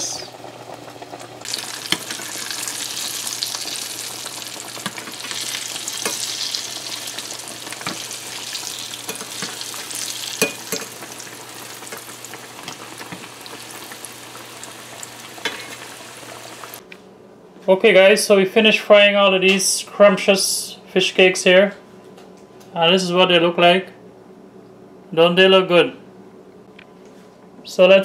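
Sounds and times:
fish cakes sizzling in oil: 0.0s - 16.8s
metal spoons clicking on pan: 10.4s - 10.9s.

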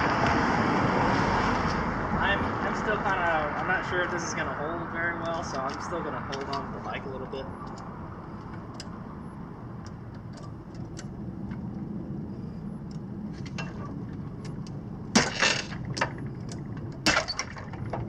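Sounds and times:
ratchet strap metallic clicks: 7.6s - 9.1s.

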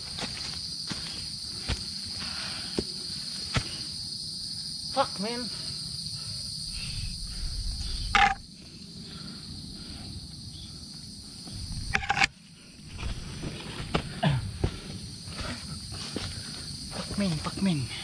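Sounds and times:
insects droning: 0.0s - 18.0s.

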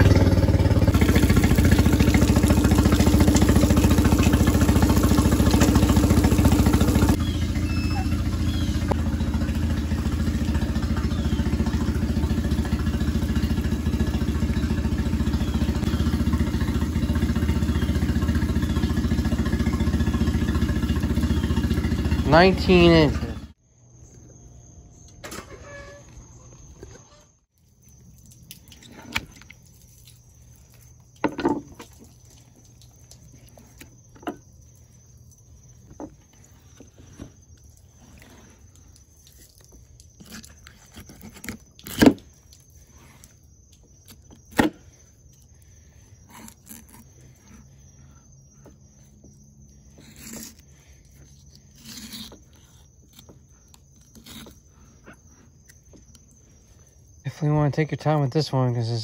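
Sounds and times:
high insect trill: 0.0s - 59.0s.

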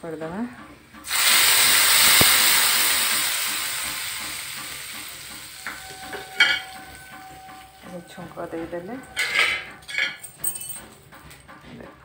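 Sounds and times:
spices sizzling in oil: 1.0s - 8.2s
metal clink: 9.1s - 11.0s.

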